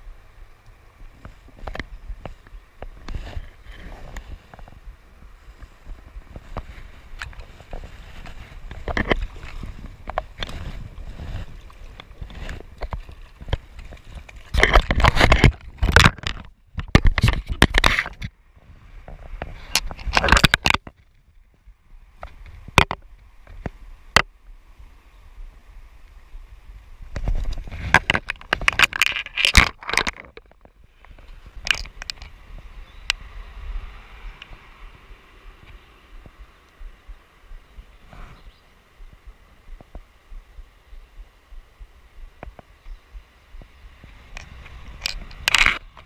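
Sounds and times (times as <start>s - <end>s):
knocking and scraping: 6.3s - 18.3s, 27.2s - 32.3s
stream rushing: 22.1s - 46.0s.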